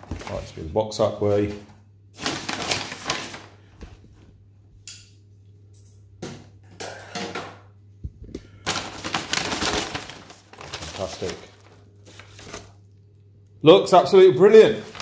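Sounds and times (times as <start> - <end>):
packing paper rustling: 0.0 - 4.0, 8.5 - 13.0, 14.6 - 15.0.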